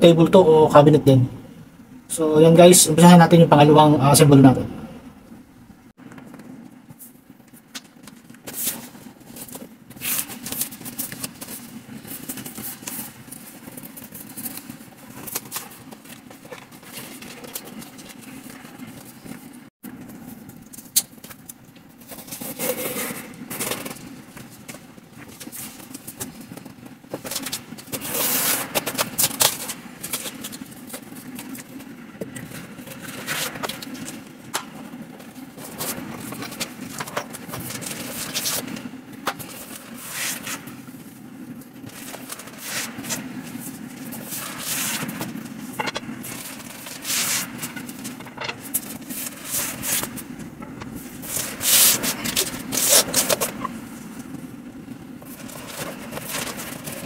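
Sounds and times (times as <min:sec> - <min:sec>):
cardboard rustling and scraping: 0:22.0 - 0:34.3, 0:35.2 - 0:54.4, 0:55.2 - 0:57.0.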